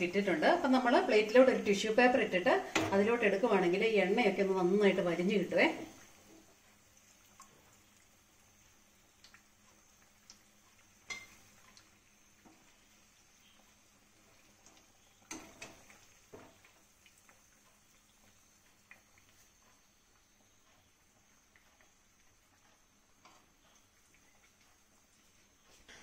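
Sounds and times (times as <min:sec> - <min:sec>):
metal utensils clicking on frying pan: 0:11.0 - 0:11.9, 0:15.2 - 0:16.8.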